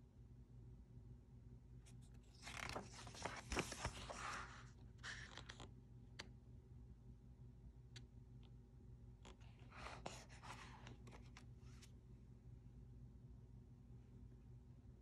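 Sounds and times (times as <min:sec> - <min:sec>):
book page turning: 0:01.9 - 0:05.7, 0:09.3 - 0:12.0.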